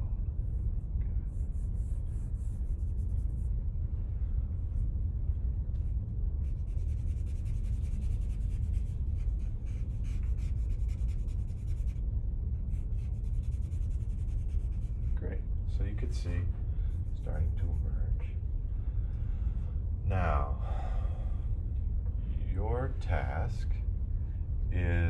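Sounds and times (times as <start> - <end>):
low hum: 0.0 - 25.0
charcoal scratching on paper: 6.4 - 15.2.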